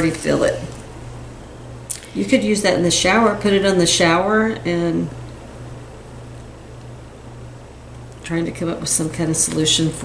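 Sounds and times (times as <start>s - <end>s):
low hum: 0.0s - 10.0s.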